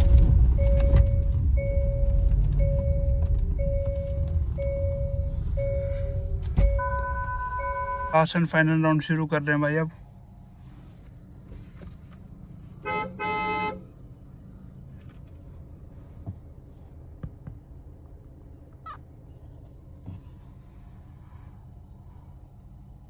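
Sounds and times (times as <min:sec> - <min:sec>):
low engine hum: 0:00.0 - 0:23.0
car horn honking: 0:06.7 - 0:08.3, 0:12.8 - 0:13.9.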